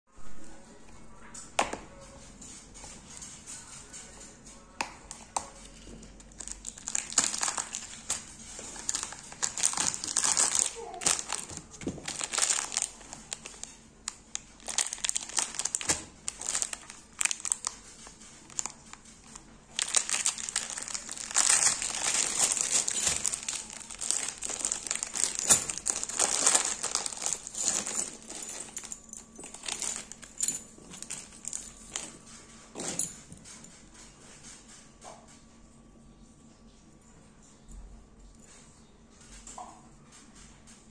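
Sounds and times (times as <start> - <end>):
packaging crinkling and rustling: 5.1 - 32.0.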